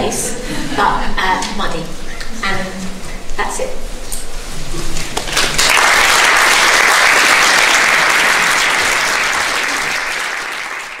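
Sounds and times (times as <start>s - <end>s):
audience applauding: 5.1s - 11.0s.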